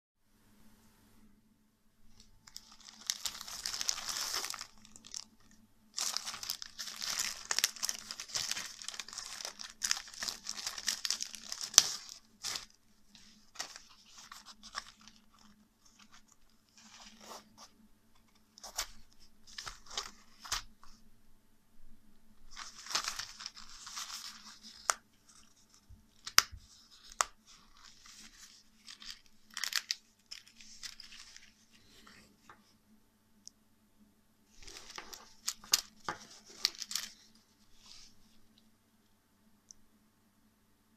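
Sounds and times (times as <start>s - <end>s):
plastic bag crinkling: 2.1s - 17.4s, 22.5s - 31.7s, 34.5s - 37.9s
soft rustles: 34.5s - 38.7s.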